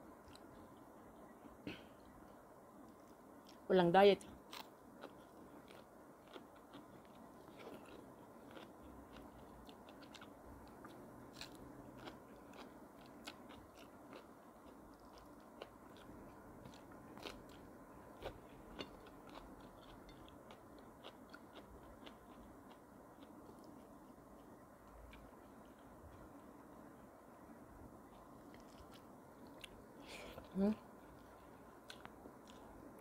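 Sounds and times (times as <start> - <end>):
person chewing: 4.4 - 26.4, 28.1 - 33.0.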